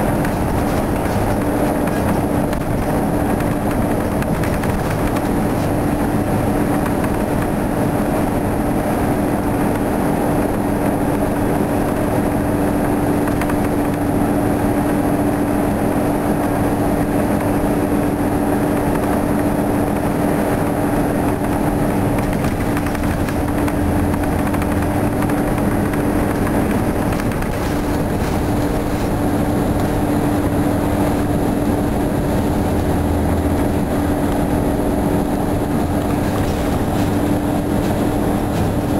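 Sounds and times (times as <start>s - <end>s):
bus engine drone: 0.0s - 38.9s
road and body noise: 0.0s - 38.9s.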